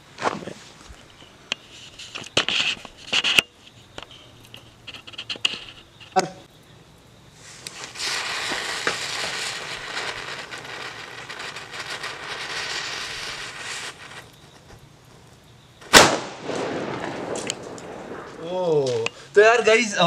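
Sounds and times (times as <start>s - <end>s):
firecracker fuse hissing: 0.0s - 6.3s, 7.3s - 19.9s
loud bang: 15.9s - 19.0s.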